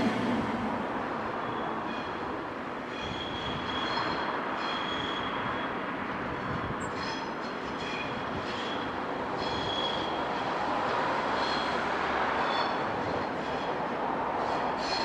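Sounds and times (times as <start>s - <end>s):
high-pitched wheel squeal: 2.9s - 5.8s, 7.0s - 10.4s, 12.4s - 12.8s.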